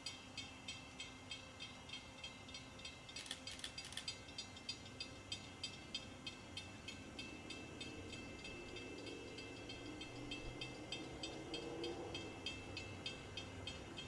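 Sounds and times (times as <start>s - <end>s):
faint bell ringing: 4.1s - 14.0s.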